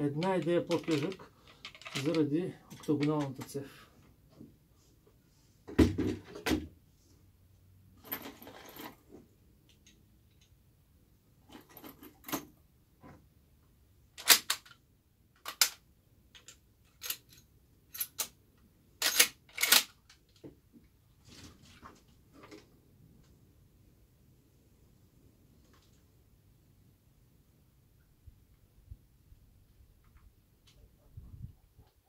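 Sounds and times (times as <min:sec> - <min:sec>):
rifle wood and metal clicks: 0:00.2 - 0:03.6, 0:14.2 - 0:14.8, 0:15.4 - 0:18.4, 0:19.0 - 0:20.5.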